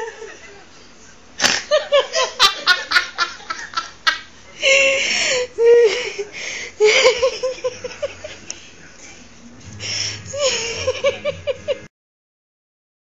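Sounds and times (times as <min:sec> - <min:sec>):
high-pitched laughter: 0:10.3 - 0:11.9.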